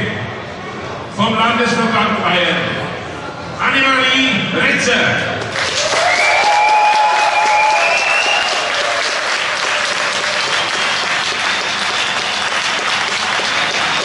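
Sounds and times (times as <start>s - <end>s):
audience applauding: 5.4s - 14.0s
long held cheer: 5.6s - 14.0s.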